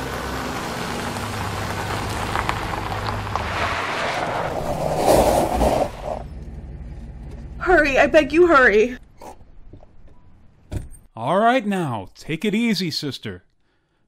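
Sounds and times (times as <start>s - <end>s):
car driving engine hum: 0.0s - 4.7s.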